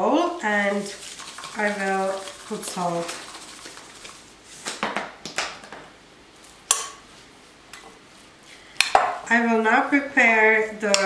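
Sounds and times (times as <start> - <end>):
spoon stirring raw chicken: 0.4 - 4.4.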